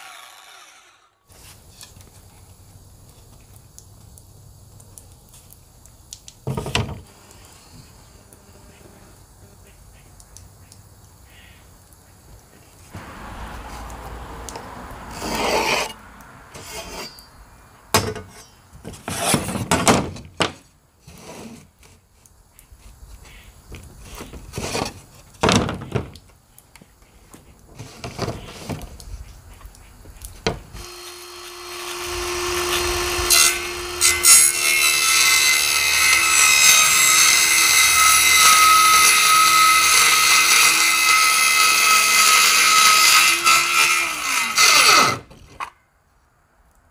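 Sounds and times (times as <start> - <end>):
power tool motor whirring: 0.0 - 1.2, 30.8 - 43.3
straightedge scraping on plywood: 15.1 - 16.0, 16.6 - 17.2, 18.2 - 19.8, 21.1 - 22.0, 24.0 - 25.0.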